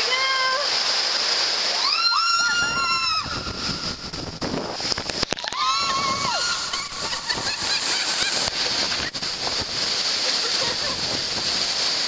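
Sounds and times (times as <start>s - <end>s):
rushing splashing water: 0.0s - 12.0s
woman screaming: 1.8s - 3.5s, 5.4s - 7.2s.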